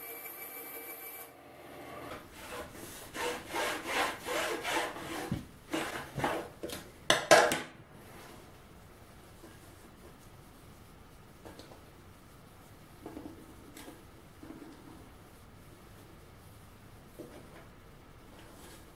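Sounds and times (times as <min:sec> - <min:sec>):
wooden strip scraping a surface: 0:02.1 - 0:06.5.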